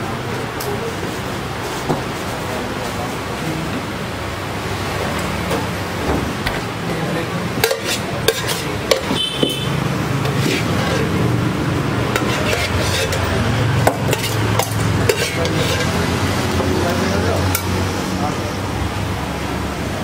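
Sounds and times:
metal pan clinking: 7.6s - 9.6s, 12.1s - 16.0s.

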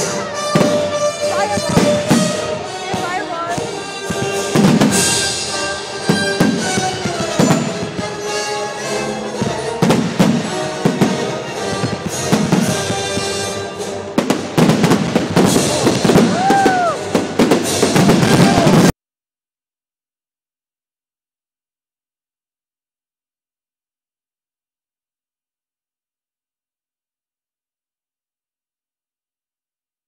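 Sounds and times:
music with long held tones: 0.0s - 18.5s
firework booms and crackles: 0.0s - 18.9s
firework whistle: 0.0s - 18.9s.

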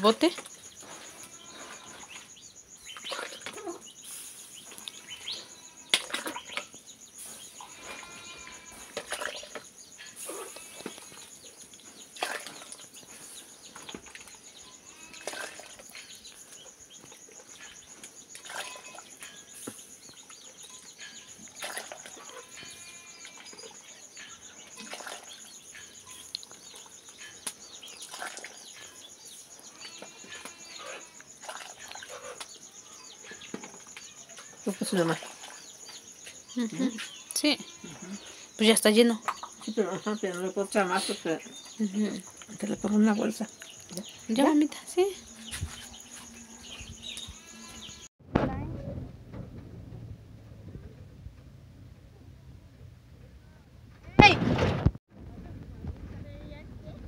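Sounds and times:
birds chirping: 0.0s - 48.1s
insect buzz: 0.1s - 48.1s
broth splashing into bucket: 31.4s - 32.1s.

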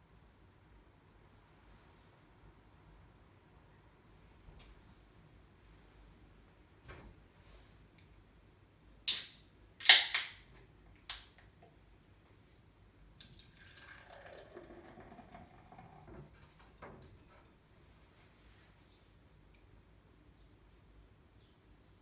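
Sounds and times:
beer pouring into glass: 13.2s - 16.4s.

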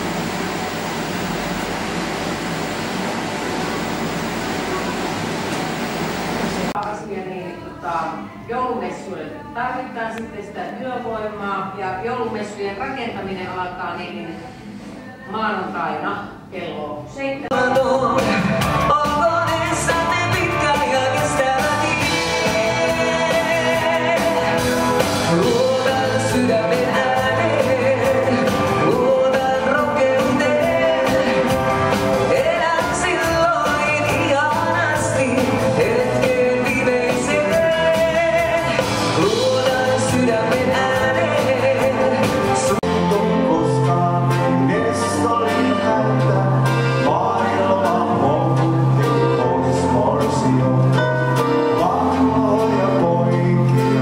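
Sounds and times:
live dance band playing: 0.0s - 6.8s, 17.5s - 54.0s
steady bass line: 0.0s - 6.8s, 17.5s - 54.0s
woman singing: 17.2s - 24.6s, 25.3s - 42.8s.

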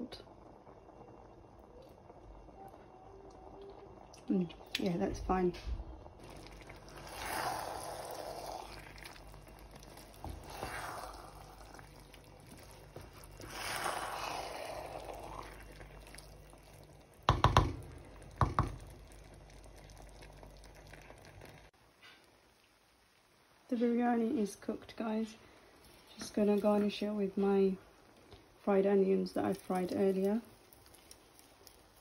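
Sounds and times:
spoon scraping rice in a pan: 6.3s - 16.2s
spoon knocking against a pan: 17.3s - 18.8s.

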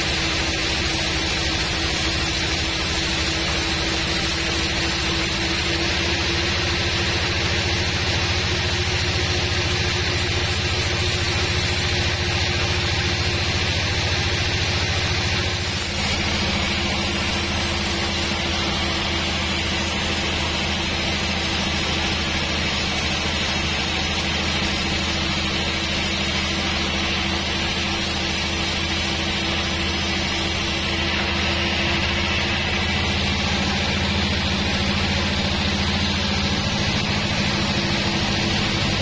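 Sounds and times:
machine low drone: 0.0s - 39.0s
band saw blade ripping log: 9.0s - 12.1s.

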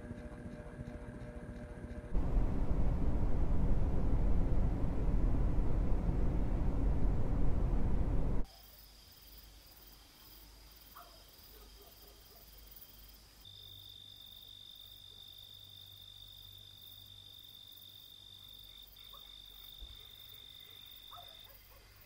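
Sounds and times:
low hum: 0.1s - 8.4s
cricket trill: 8.4s - 22.0s.

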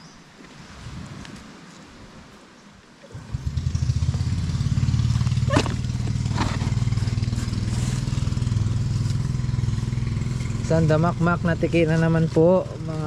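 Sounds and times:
small engine idling: 3.1s - 12.9s.

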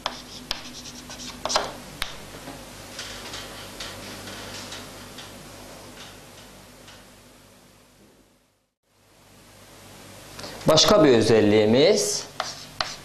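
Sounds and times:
chalk tapping on blackboard: 0.0s - 2.2s, 12.3s - 13.0s.

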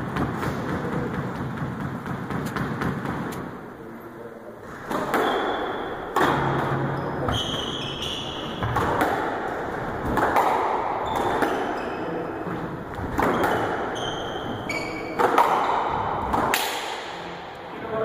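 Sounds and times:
squash ball hits: 0.0s - 3.6s, 4.7s - 17.2s
shoes squeaking on wooden floor: 6.8s - 8.9s, 11.0s - 16.2s.

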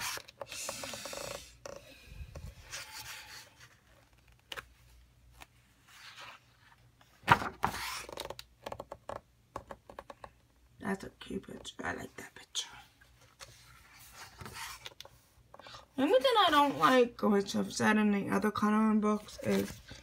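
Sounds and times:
book pages turning: 0.0s - 8.9s, 13.2s - 15.3s, 19.2s - 20.0s.

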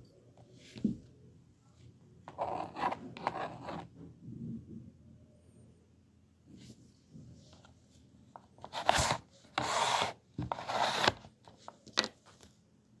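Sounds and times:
slide eraser rasping on drawing board: 8.7s - 11.1s.

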